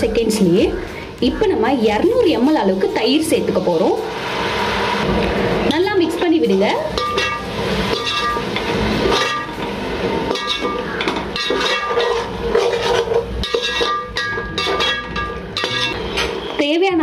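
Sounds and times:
metal ladle scraping pot: 0:02.2 - 0:16.5
pot ringing: 0:05.8 - 0:16.6.

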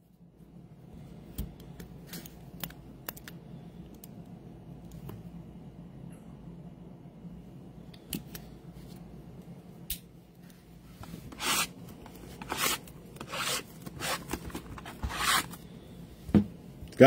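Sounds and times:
low steady hum: 0:00.0 - 0:17.0
cardboard scraping and rustling: 0:11.2 - 0:15.6.

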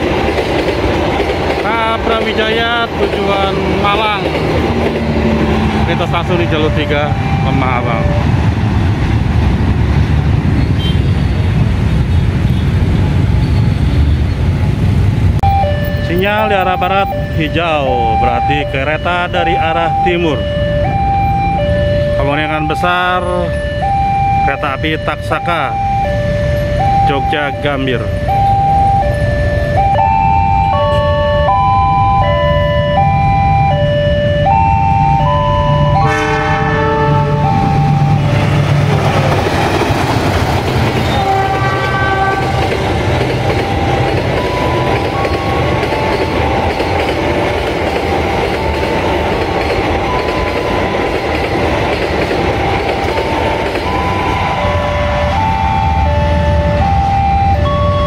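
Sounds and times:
train wheels rushing on rails: 0:00.0 - 0:58.0
electronic warning signal tones: 0:04.9 - 0:08.3, 0:15.4 - 0:39.3, 0:43.2 - 0:58.0
train horn: 0:36.0 - 0:38.2, 0:41.0 - 0:42.7.

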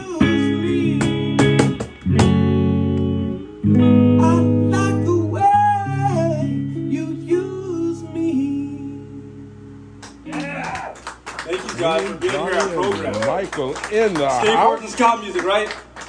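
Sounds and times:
person singing: 0:00.0 - 0:01.6, 0:04.2 - 0:09.3
acoustic guitar strumming chords: 0:00.0 - 0:10.6.

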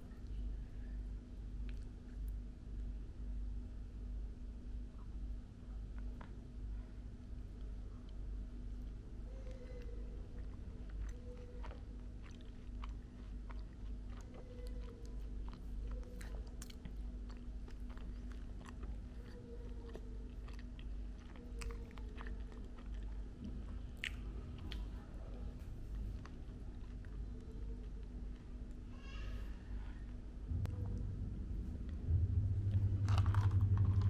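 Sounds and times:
steady low hum: 0:00.0 - 0:34.0
chewing and crunching: 0:01.4 - 0:02.5, 0:07.6 - 0:28.9.

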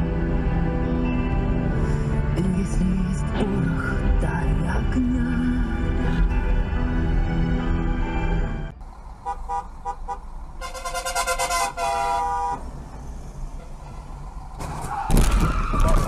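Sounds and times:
car horn honking: 0:09.2 - 0:12.7, 0:13.6 - 0:14.2.

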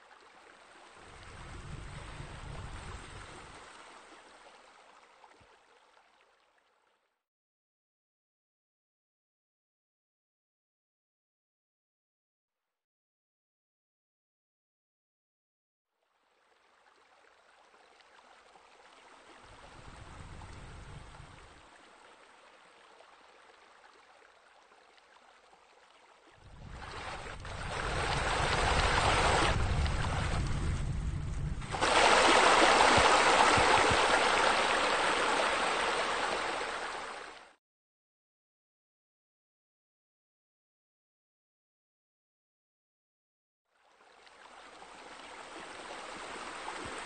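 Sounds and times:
running splashing water: 0:16.3 - 0:30.8, 0:31.6 - 0:37.5, 0:44.0 - 0:47.0.

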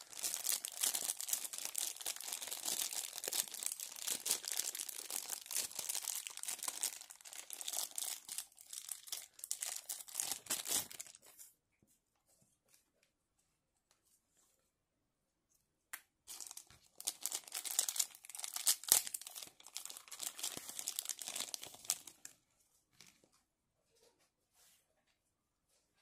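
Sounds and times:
plastic bag crinkling: 0:00.0 - 0:11.4, 0:16.3 - 0:22.4.

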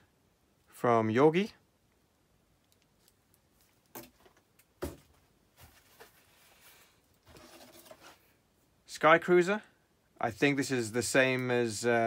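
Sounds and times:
bubble wrap and cardboard rustling: 0:04.8 - 0:08.3.

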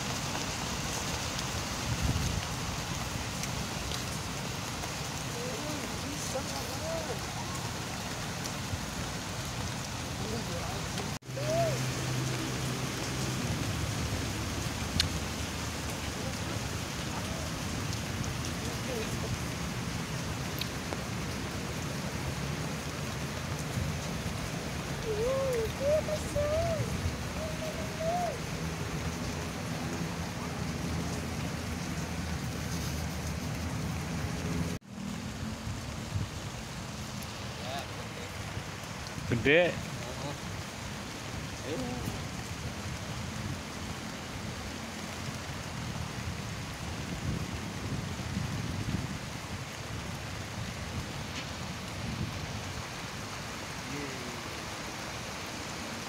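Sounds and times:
rain on water: 0:00.0 - 0:56.0
wavering bird call: 0:25.0 - 0:28.5.

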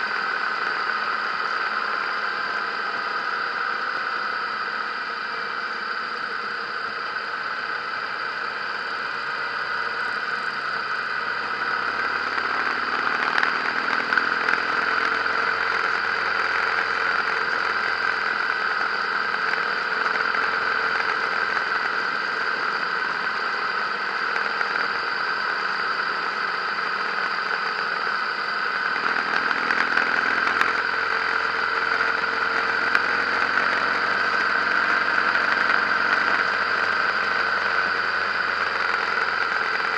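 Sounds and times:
motorcycle engine running: 0:08.9 - 0:25.4, 0:28.6 - 0:39.9.

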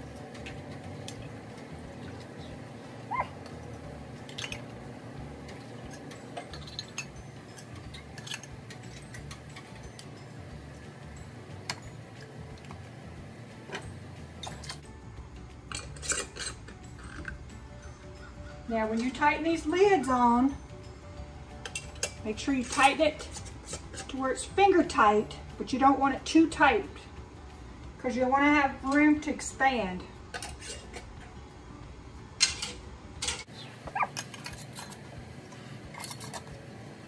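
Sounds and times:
low steady hum: 0:00.0 - 0:37.0
metal lids clicking on glass jars: 0:04.2 - 0:04.7, 0:05.8 - 0:10.1, 0:15.7 - 0:17.4, 0:21.6 - 0:24.2.

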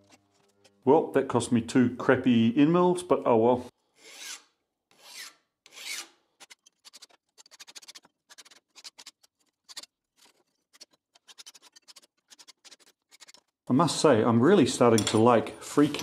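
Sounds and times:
file scraping metal: 0:00.0 - 0:00.8, 0:04.0 - 0:13.6, 0:14.9 - 0:16.0.

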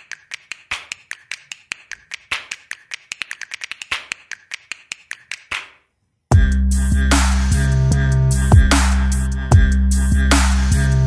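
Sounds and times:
rapid sharp clicks: 0:00.0 - 0:05.8.

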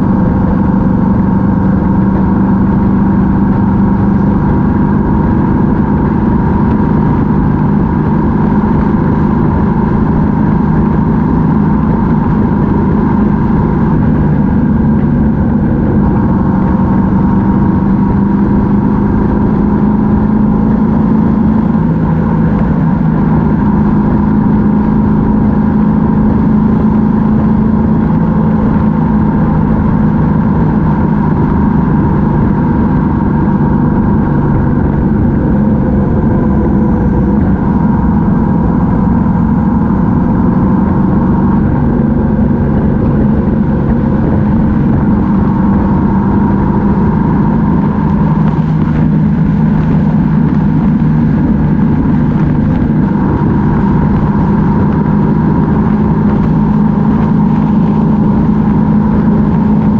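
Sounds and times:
motorcycle engine cruising: 0:00.0 - 0:59.9.

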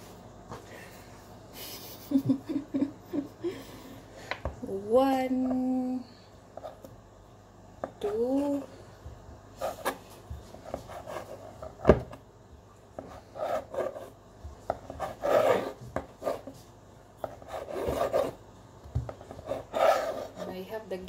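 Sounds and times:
knife slicing through dough: 0:13.0 - 0:16.6, 0:19.2 - 0:20.6.

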